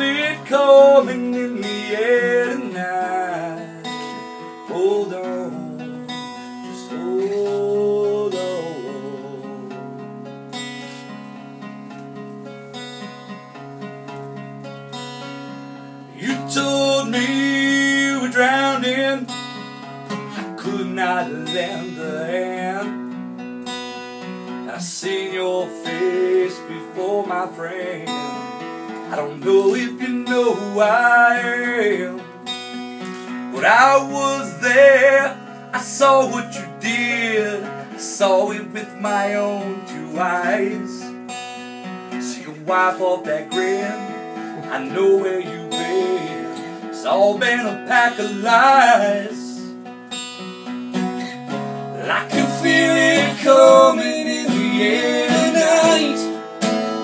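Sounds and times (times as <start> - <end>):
man singing: 0.0 - 10.0, 16.2 - 19.4, 20.2 - 23.1, 24.6 - 32.4, 33.2 - 41.3, 42.1 - 49.8, 51.8 - 57.0
acoustic guitar strumming: 0.0 - 57.0.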